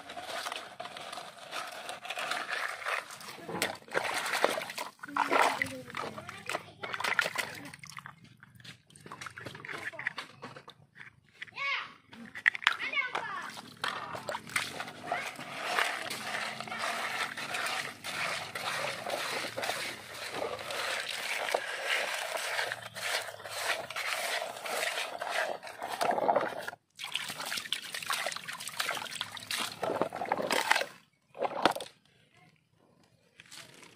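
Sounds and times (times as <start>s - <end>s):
gritty scrapes on plastic: 0.0s - 7.4s, 12.2s - 26.8s, 29.4s - 31.8s
muddy water sloshing: 0.2s - 11.4s, 12.6s - 32.0s.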